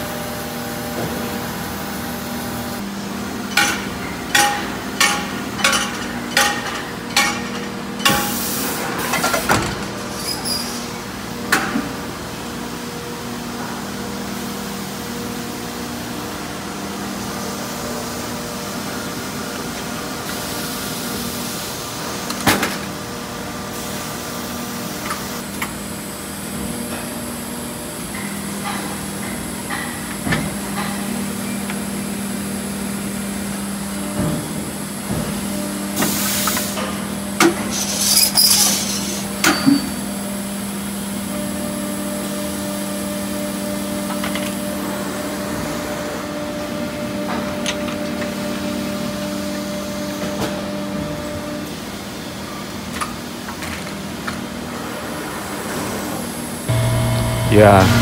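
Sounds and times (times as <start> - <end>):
moulding machine humming: 56.7 - 58.0.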